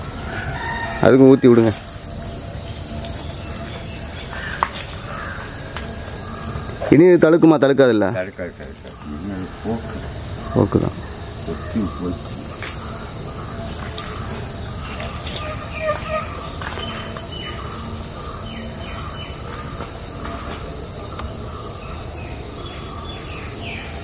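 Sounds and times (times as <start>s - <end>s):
insects droning: 0.0s - 24.0s
bird chirps: 13.7s - 20.6s.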